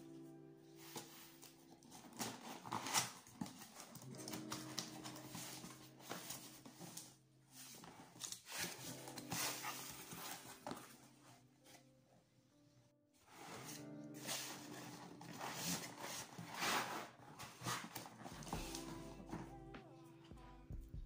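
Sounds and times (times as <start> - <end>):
soft background music: 0.0 - 21.0
cardboard flaps rustling and scraping: 0.8 - 11.3, 13.3 - 19.5.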